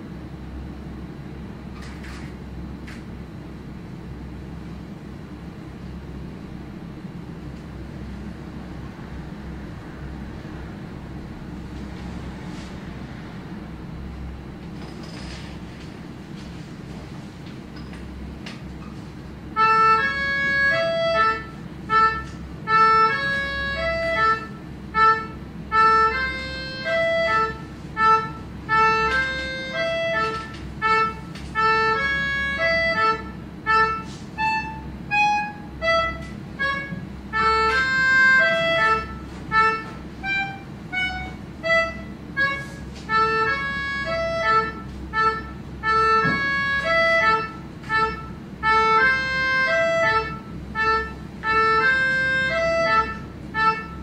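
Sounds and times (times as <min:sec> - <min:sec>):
melodica melody: 0:19.5 - 0:54.0.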